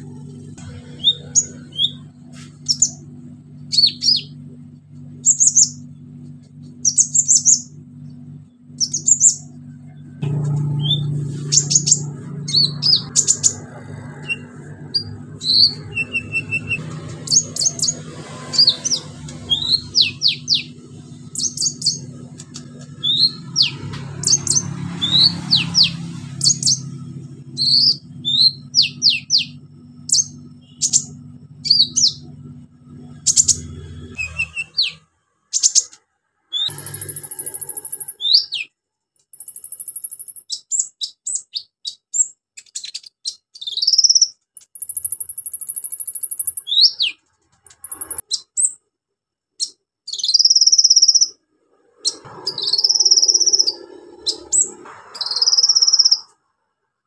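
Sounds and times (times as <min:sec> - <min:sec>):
low steady hum: 0:00.0 - 0:35.6
bird singing high chirps: 0:00.7 - 0:03.0, 0:03.7 - 0:04.4, 0:05.2 - 0:05.9, 0:06.8 - 0:08.2, 0:08.8 - 0:09.6, 0:10.8 - 0:32.4, 0:33.1 - 0:38.7, 0:39.4 - 0:47.2, 0:49.6 - 0:56.3.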